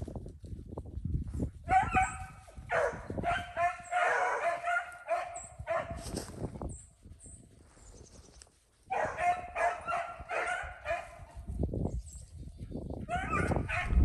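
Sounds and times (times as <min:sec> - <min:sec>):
hounds baying and howling: 0:01.7 - 0:06.0, 0:08.8 - 0:11.5, 0:13.0 - 0:14.0.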